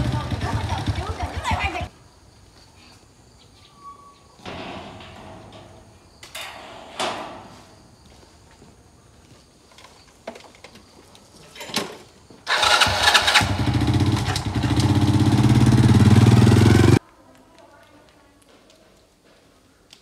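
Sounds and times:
small motorbike engine running: 0.0s - 1.9s, 12.5s - 17.0s.

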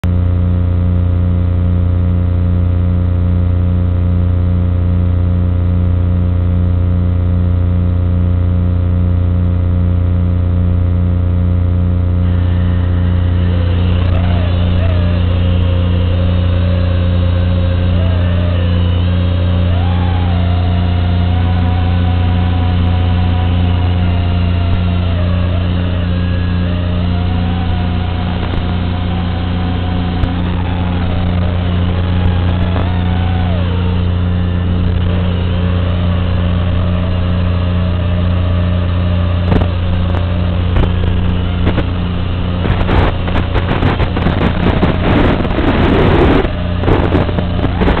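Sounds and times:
low electrical hum and buzz: 0.0s - 48.0s
quadcopter motors whining: 11.8s - 48.0s.

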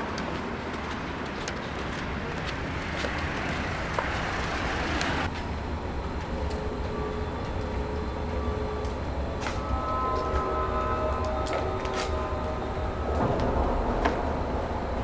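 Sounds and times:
street traffic rumble: 0.0s - 15.0s
faint steady tones: 5.2s - 15.0s.

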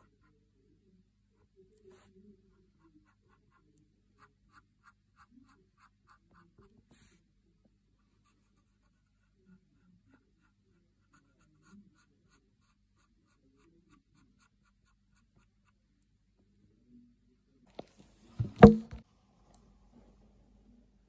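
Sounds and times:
paint marker scratching: 4.2s - 7.1s.

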